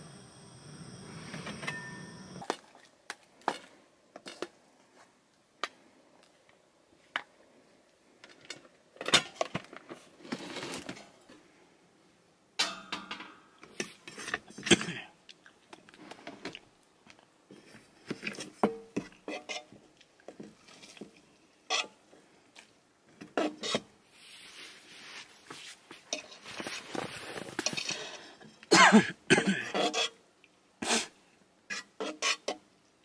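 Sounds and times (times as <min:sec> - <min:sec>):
steady noise: 0:00.0 - 0:02.4
kitchenware clicks and knocks: 0:12.6 - 0:13.4.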